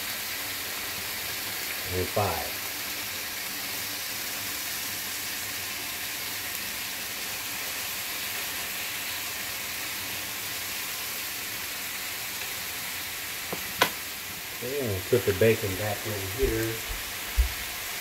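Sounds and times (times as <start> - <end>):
bacon sizzling in a skillet: 0.0 - 18.0.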